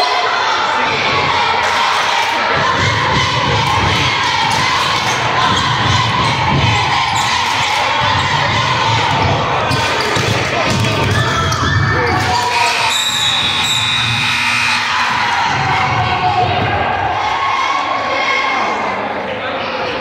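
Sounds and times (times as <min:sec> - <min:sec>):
crowd chatter: 0:00.0 - 0:20.0.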